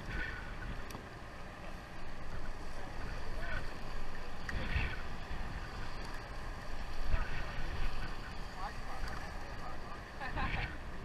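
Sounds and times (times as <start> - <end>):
wind on microphone: 0.0 - 1.2, 2.0 - 11.0
steady low rumble: 0.0 - 11.0
water washing along hull: 0.0 - 11.0.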